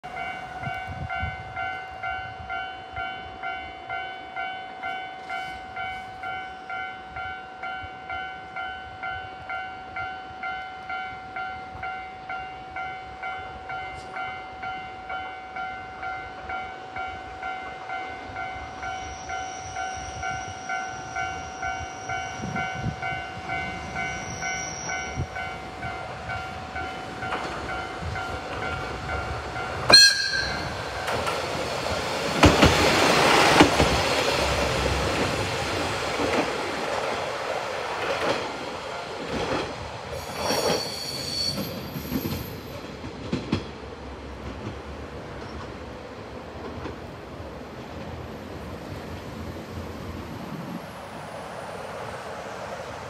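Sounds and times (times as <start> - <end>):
diesel railcar rumble: 0.0 - 53.0
level crossing bell ringing: 29.9 - 31.0.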